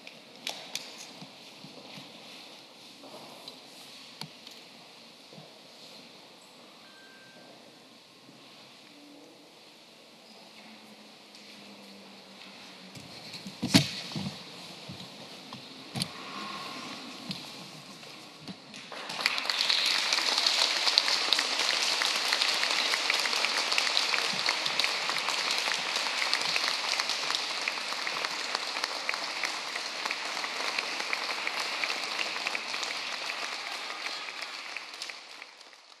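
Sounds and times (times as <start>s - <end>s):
audience applauding: 18.8s - 36.0s.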